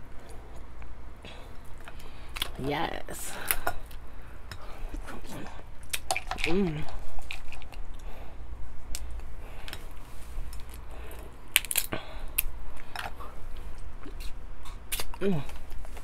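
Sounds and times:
crab shells cracking: 5.8 - 8.0, 11.5 - 13.2.

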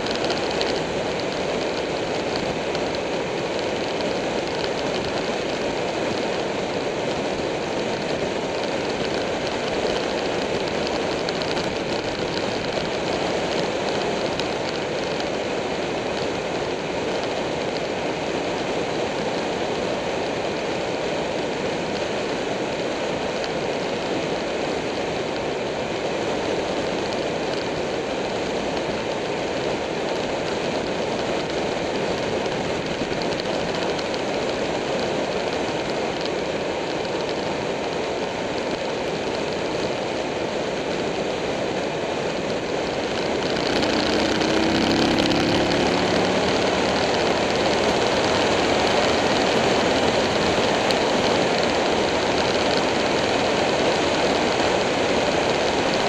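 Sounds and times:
motorcycle engine: 42.4 - 56.0.

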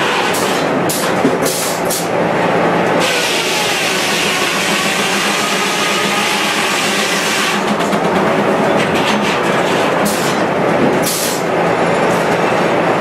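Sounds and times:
sawmill machinery hum: 0.0 - 13.0
circular saw cutting timber: 3.0 - 7.9.

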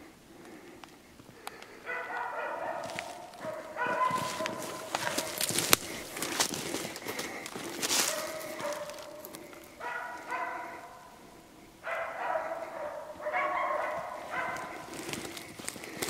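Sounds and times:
dog barking: 1.8 - 6.4, 7.9 - 15.4.

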